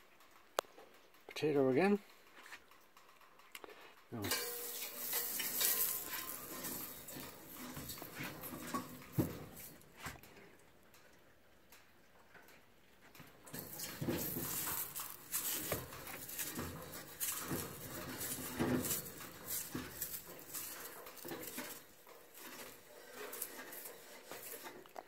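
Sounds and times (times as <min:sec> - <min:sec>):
potato scraping and sizzling on grill: 0:04.2 - 0:10.0, 0:13.5 - 0:25.0.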